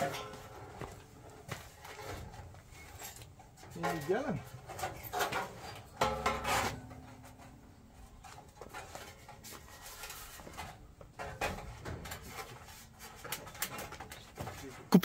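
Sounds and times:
faint knocks and rattles: 0.0s - 14.9s
sheet metal clank ringing: 6.0s - 7.1s.

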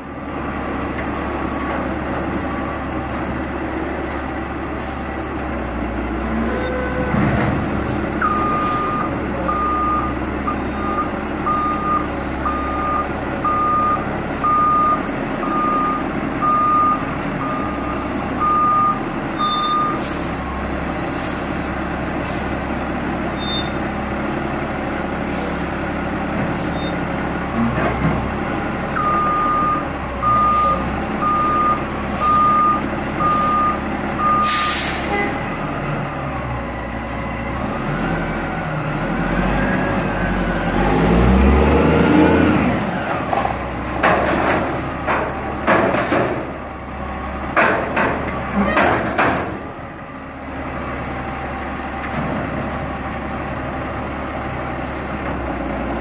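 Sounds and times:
reverse alarm beeping: 10.8s - 20.0s, 29.0s - 34.7s.

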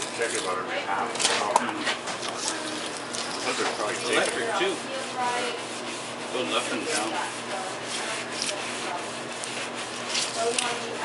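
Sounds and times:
knife slicing through fish: 7.8s - 11.0s.

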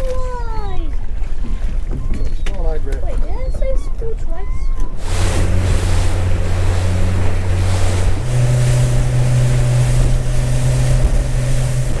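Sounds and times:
wind and rushing water: 0.0s - 12.0s
motorboat engine running: 4.8s - 12.0s.

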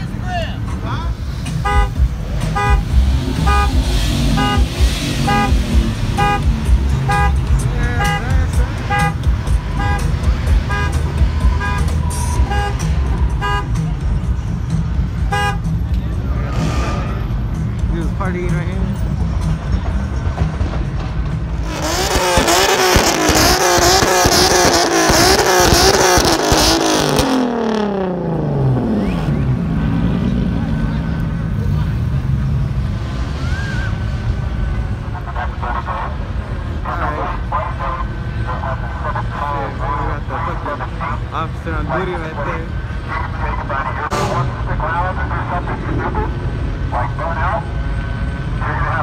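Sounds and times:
low rumble of engines: 0.0s - 49.0s
car horn honking: 1.5s - 14.0s, 15.1s - 15.9s.

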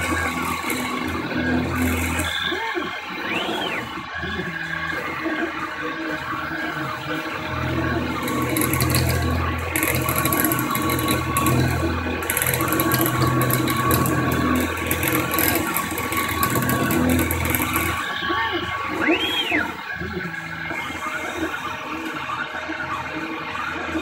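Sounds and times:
hissing metal cutting: 0.0s - 24.0s
mill spindle whine: 0.0s - 24.0s.

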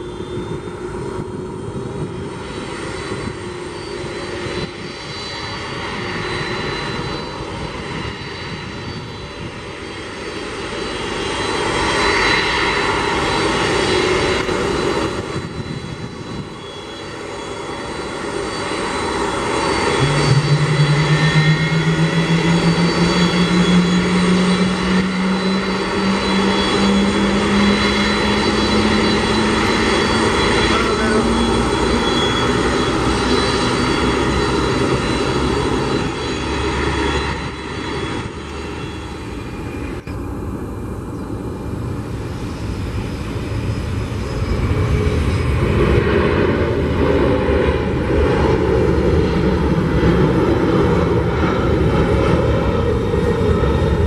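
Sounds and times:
jet engines roaring: 0.0s - 54.0s
low hum rising in pitch: 18.8s - 42.2s.

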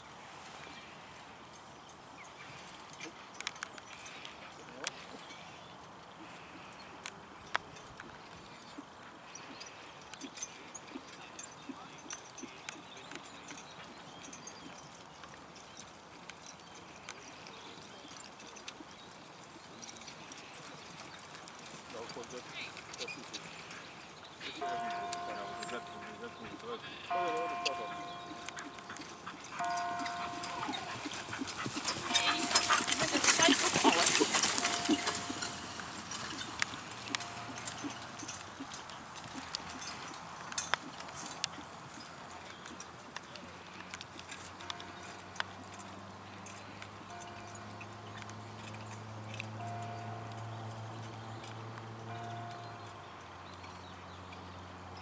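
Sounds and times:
horse hoofbeats trotting on grass: 0.0s - 55.0s.

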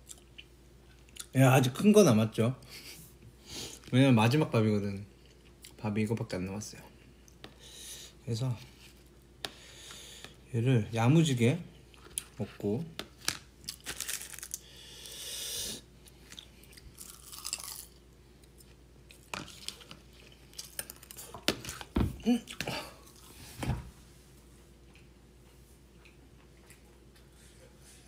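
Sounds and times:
person chewing food: 0.0s - 1.3s, 16.0s - 23.4s, 24.8s - 27.6s.

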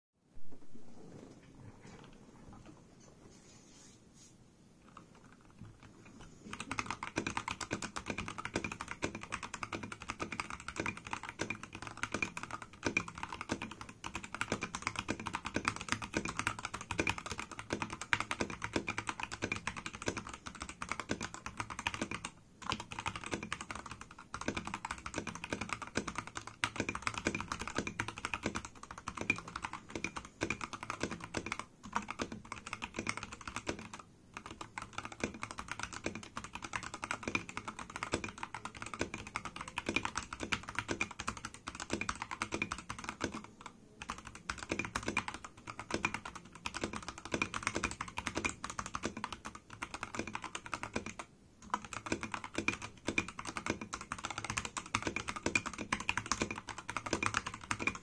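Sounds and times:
mechanical keyboard typing: 4.8s - 58.0s.

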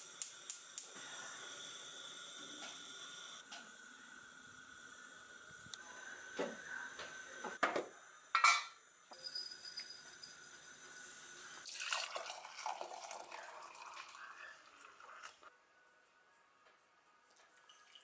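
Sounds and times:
gas burner hissing: 0.0s - 11.7s
spoon and tin clinks: 8.4s - 10.5s
hot water pouring into mug: 9.1s - 15.5s, 17.4s - 18.0s.

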